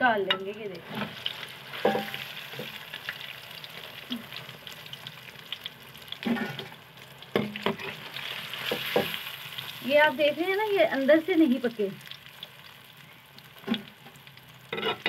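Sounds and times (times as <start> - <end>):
fritters sizzling in hot fat: 0.0 - 15.0
metal spoon knocking pan: 0.2 - 0.6, 1.8 - 2.2.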